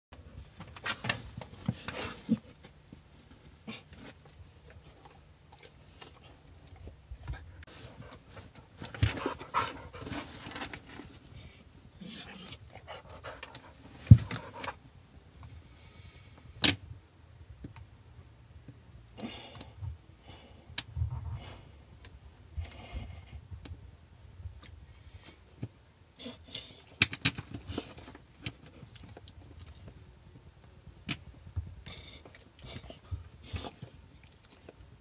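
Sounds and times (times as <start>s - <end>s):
rustling: 0.2s - 15.6s
dog panting: 7.3s - 10.5s, 12.7s - 14.8s.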